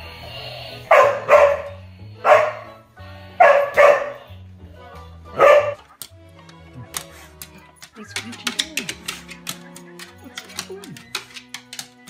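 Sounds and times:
background music: 0.0 - 12.0
large dog barking: 0.9 - 2.7, 3.4 - 4.2, 5.4 - 5.8.

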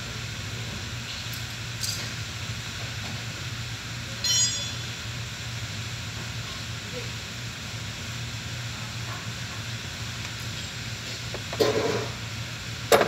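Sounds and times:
low mechanical hum with hiss: 0.0 - 13.0
short high-pitched ring: 4.2 - 5.0.

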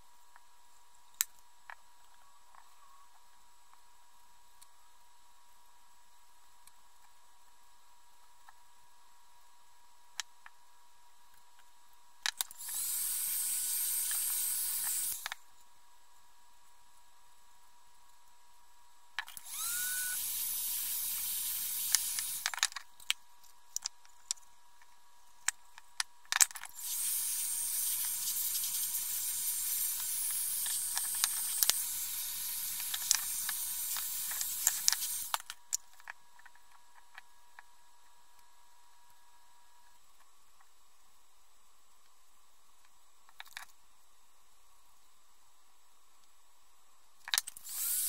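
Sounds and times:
heat gun blowing: 12.6 - 15.3, 19.3 - 22.5, 26.8 - 35.4, 47.6 - 48.0.

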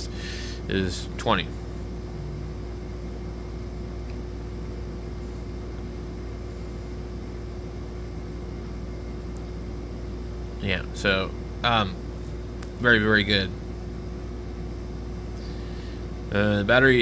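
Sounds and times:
background hum and hiss: 0.0 - 17.0
constant tone: 0.7 - 9.6.

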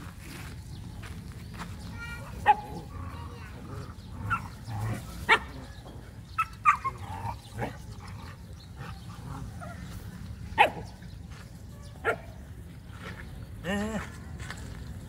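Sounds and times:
dogs barking and yipping: 2.3 - 11.3, 12.0 - 12.7.

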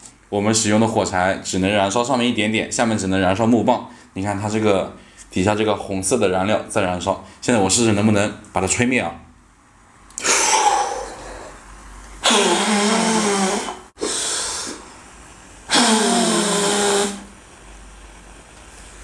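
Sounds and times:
man blowing hard: 10.2 - 11.6, 12.2 - 15.0, 15.7 - 17.4.

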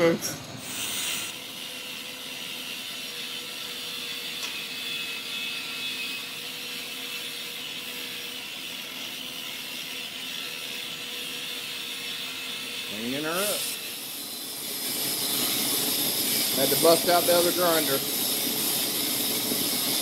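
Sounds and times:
angle grinder on metal: 0.6 - 20.0.

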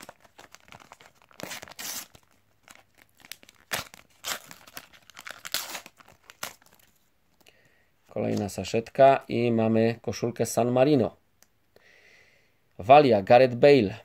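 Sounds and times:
paper sachet tearing: 0.0 - 6.9.

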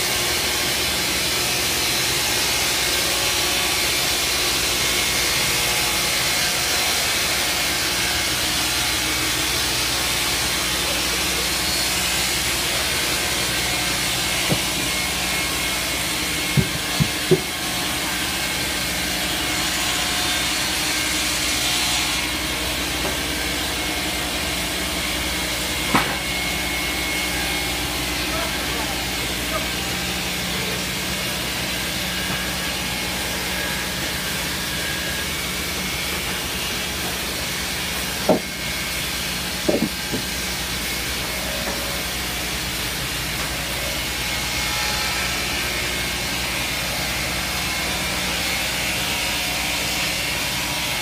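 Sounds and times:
saw motor hum: 0.4 - 44.6
sharp knocks: 14.3 - 15.0, 16.5 - 17.7, 38.2 - 38.7, 39.6 - 40.3.

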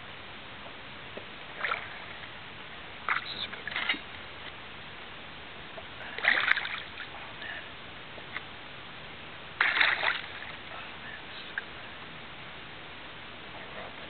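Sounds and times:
fish splashing at surface: 9.6 - 10.4.

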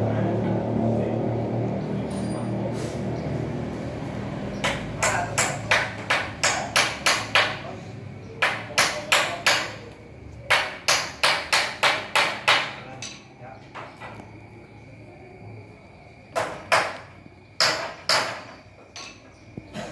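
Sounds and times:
sharp hammering knocks: 4.6 - 7.8, 8.4 - 9.9, 10.5 - 14.2, 16.3 - 19.2.

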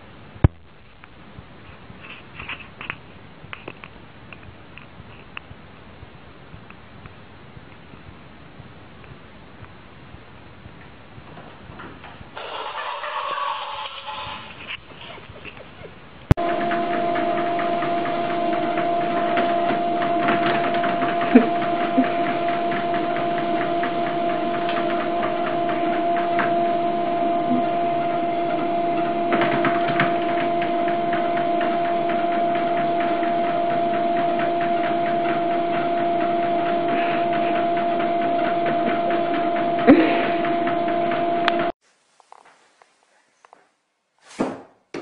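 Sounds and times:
treadmill belt clicking: 16.3 - 41.7
treadmill motor hum: 16.3 - 41.8.

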